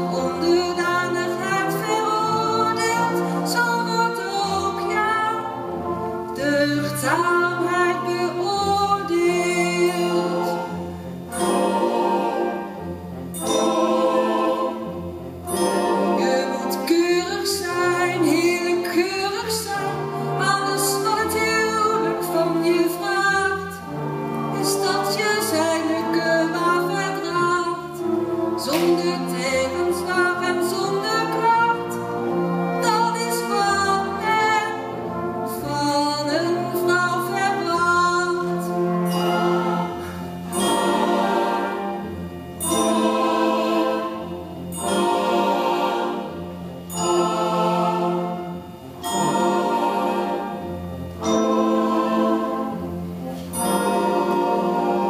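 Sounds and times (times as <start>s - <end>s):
person singing: 6.4s - 10.8s, 28.6s - 32.0s.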